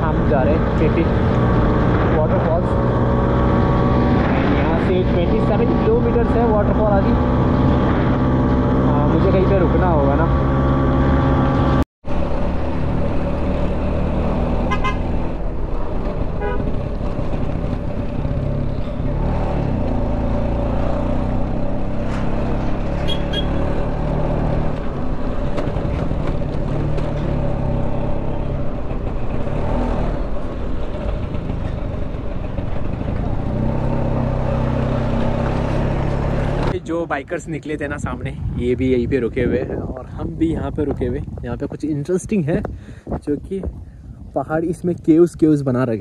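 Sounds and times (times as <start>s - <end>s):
road noise: 0.0s - 46.0s
scooter horn toots: 14.7s - 15.1s, 16.4s - 16.7s, 23.0s - 23.6s.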